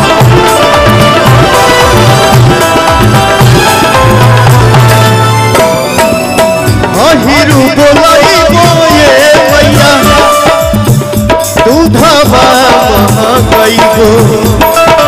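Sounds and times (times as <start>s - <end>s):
band playing: 0.0s - 15.0s
steady drum rhythm: 0.0s - 15.0s
man singing devotional song: 6.8s - 15.0s.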